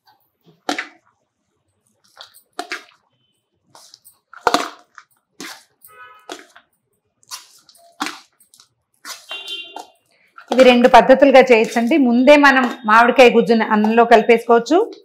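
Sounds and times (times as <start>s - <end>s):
spoon scraping metal plate: 9.0s - 12.9s.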